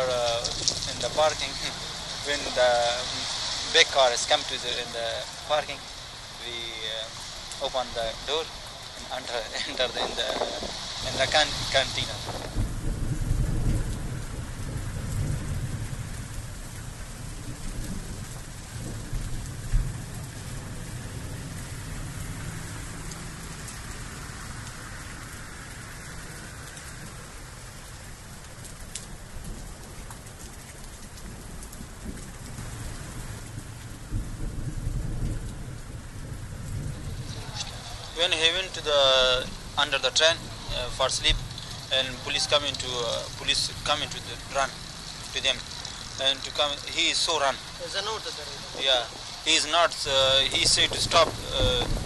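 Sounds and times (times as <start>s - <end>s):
steady rain falling: 0.0s - 52.0s
low rumble: 7.0s - 24.7s.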